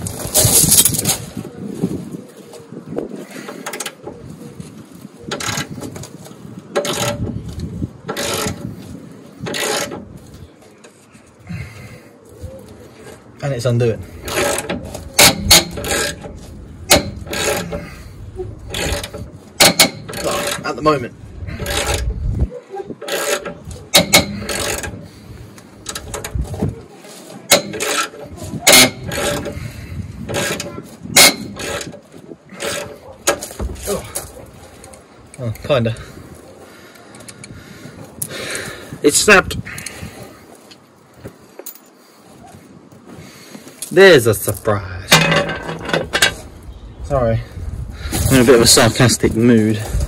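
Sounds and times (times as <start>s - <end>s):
bolt scraping and rasping: 5.3s - 11.0s, 14.0s - 22.3s, 22.9s - 26.8s, 27.4s - 36.1s, 44.5s - 46.6s.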